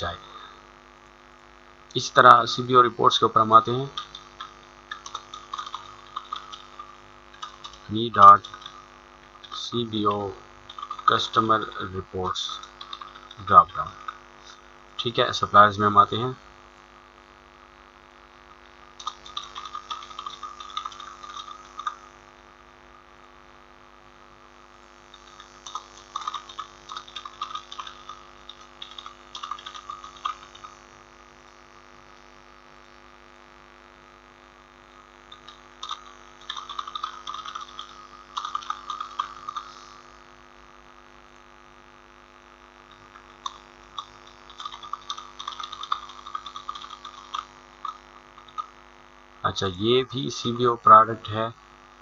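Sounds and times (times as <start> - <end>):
electrical hum: 0.0 - 52.0
keyboard typing clicks: 4.0 - 8.8, 10.7 - 11.2, 12.6 - 14.2, 19.0 - 22.0, 25.2 - 30.7, 35.3 - 39.7, 43.4 - 48.7.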